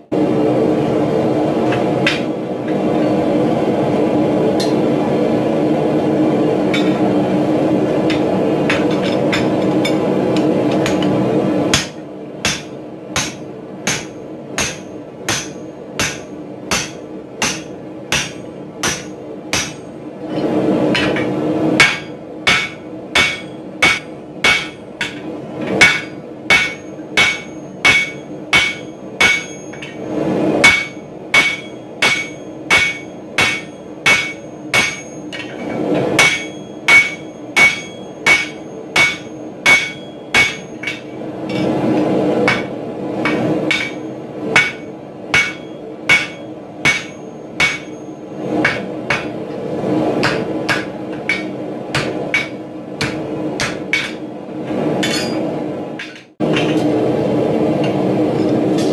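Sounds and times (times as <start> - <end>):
hammer clanging on metal punch: 21.0 - 30.0, 30.6 - 41.7, 43.3 - 44.0, 44.6 - 49.4.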